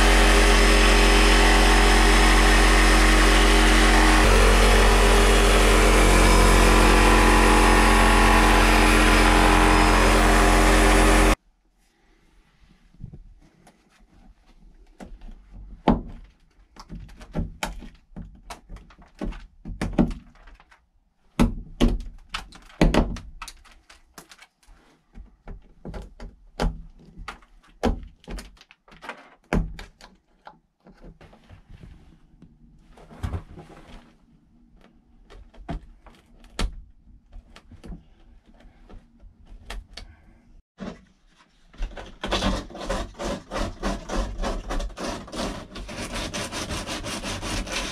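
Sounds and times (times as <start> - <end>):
sandpaper rasping: 42.4 - 47.9.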